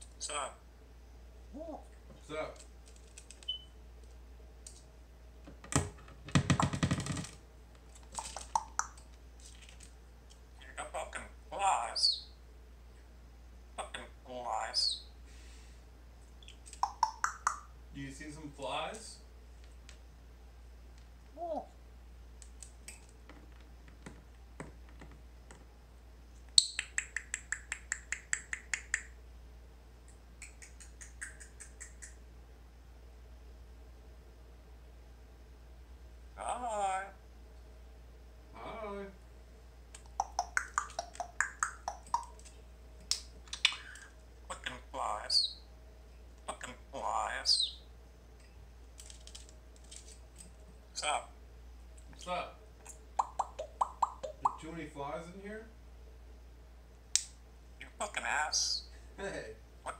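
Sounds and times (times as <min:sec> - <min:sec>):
parrot clicking: 0:08.0 - 0:09.1, 0:16.4 - 0:17.7, 0:26.6 - 0:29.2, 0:30.1 - 0:32.2, 0:39.9 - 0:42.5, 0:53.2 - 0:54.6
parrot squeak: 0:45.2 - 0:45.6, 0:47.4 - 0:47.8.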